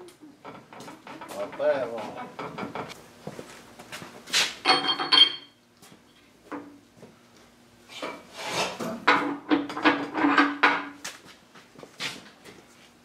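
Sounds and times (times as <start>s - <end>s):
metal knocks and clanks: 0.4s - 3.0s.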